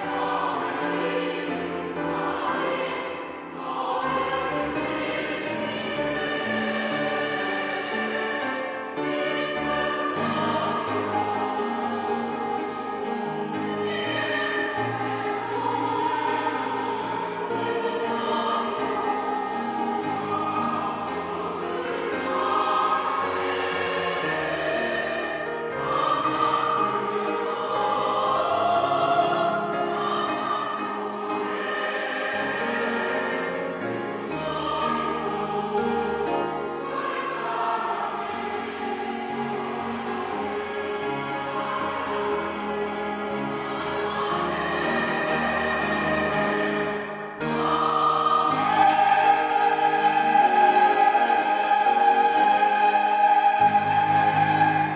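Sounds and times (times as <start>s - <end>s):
mixed choir singing in harmony: 0.0s - 54.9s.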